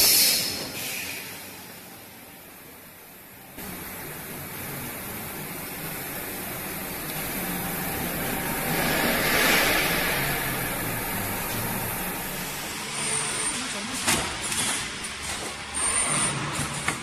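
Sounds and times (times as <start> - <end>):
packaging machine hum: 0.1 - 17.0
hissing rush: 3.6 - 13.4.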